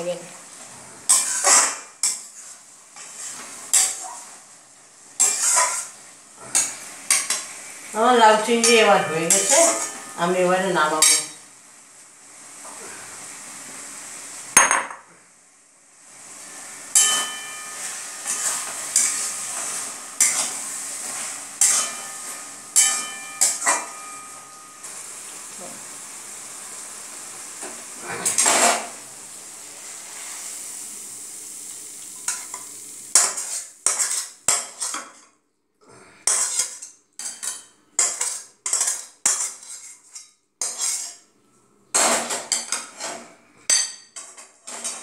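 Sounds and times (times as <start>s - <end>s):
sizzling: 0.0s - 45.0s
metal spatula scraping a wok: 0.7s - 4.2s, 5.2s - 7.5s, 8.5s - 11.4s, 16.6s - 25.1s, 32.3s - 35.2s, 36.2s - 41.3s, 44.1s - 45.0s.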